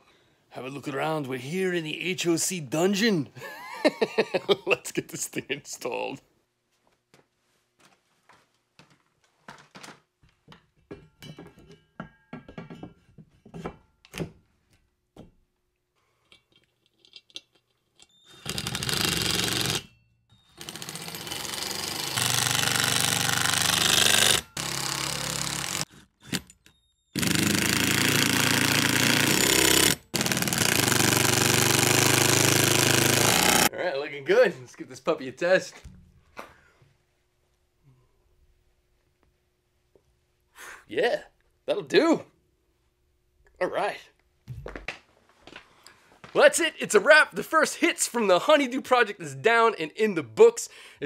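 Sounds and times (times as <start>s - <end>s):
metal parts knocking and clicking: 16.2s - 19.9s
impact driver hammering screws: 18.3s - 19.9s, 20.5s - 33.7s.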